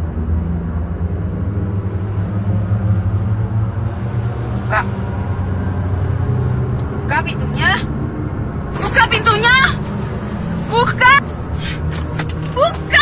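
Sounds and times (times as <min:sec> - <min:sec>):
car cabin rumble: 0:03.9 - 0:08.1, 0:08.8 - 0:13.0.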